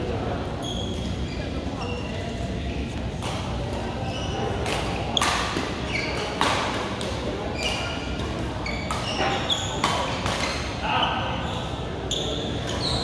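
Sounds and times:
reverberant hall background: 0.0 - 13.0
shoes squeaking on floor: 0.6 - 2.4, 4.0 - 6.4, 7.5 - 13.0
racket hitting shuttlecock: 4.6 - 10.7.

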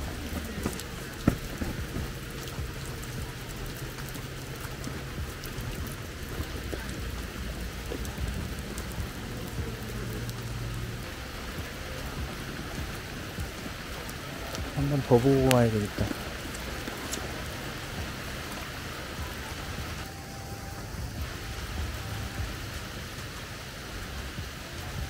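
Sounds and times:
rain falling on lawn: 0.0 - 25.0.

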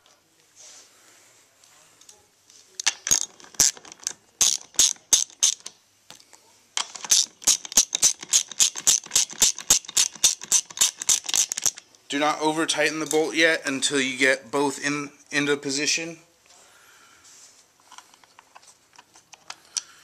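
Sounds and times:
socket ratchet clicking: 3.1 - 5.7, 6.9 - 11.8.

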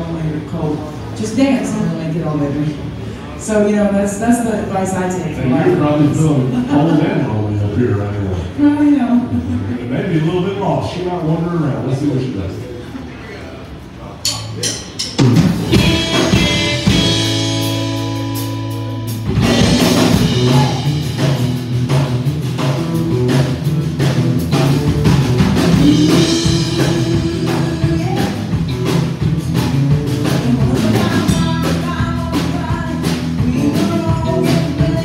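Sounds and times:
drum kit beat: 14.3 - 35.0
electric bass: 14.3 - 35.0
acoustic guitar: 15.2 - 35.0
woman singing into a microphone: 25.8 - 28.6, 30.3 - 35.0.

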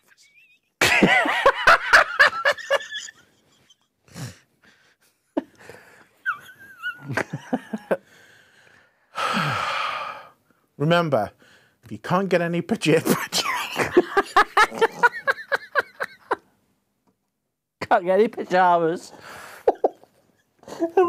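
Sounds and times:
man laughing: 0.4 - 3.9, 6.3 - 8.0, 13.4 - 16.4
breathy exhale: 8.1 - 10.4.

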